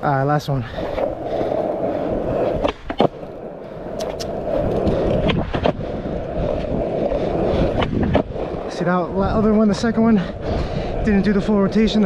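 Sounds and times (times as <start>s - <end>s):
skateboard wheels rolling on pavement: 0.0s - 12.0s
skateboard clacks: 0.8s - 8.8s.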